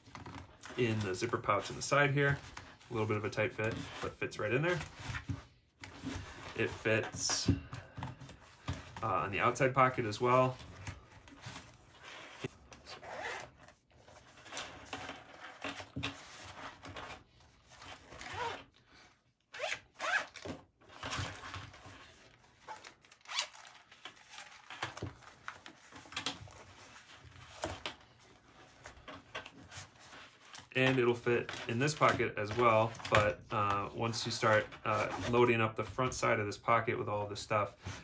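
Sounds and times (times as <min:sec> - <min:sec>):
stiff nylon scraping and rustling: 0:11.4 - 0:13.5
zipper being pulled: 0:12.0 - 0:13.7, 0:17.8 - 0:18.7, 0:19.5 - 0:20.4, 0:22.6 - 0:24.7.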